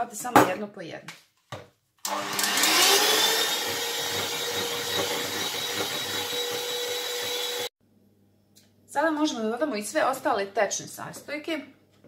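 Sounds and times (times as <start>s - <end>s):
electric hand mixer whining: 2.0s - 7.7s.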